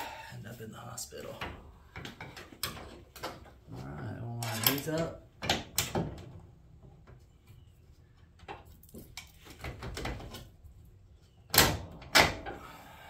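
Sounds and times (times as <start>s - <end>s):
bolt clicking and scraping on metal: 4.4s - 6.0s.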